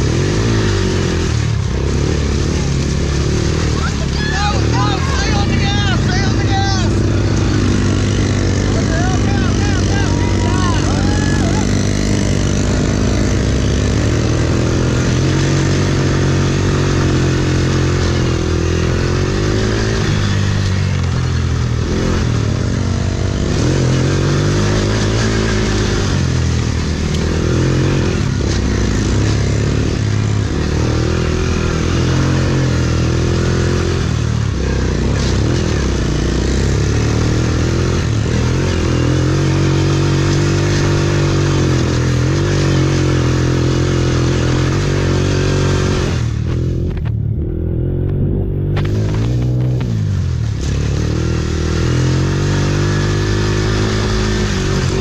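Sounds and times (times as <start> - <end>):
quad engine revving hard: 0.0 - 55.0.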